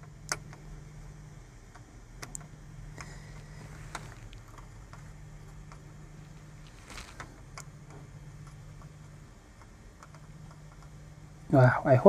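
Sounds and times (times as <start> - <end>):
small tools tapping circuit board: 0.0 - 0.8, 1.6 - 3.2, 4.2 - 6.4, 7.2 - 11.0
faint low hum: 0.0 - 12.0.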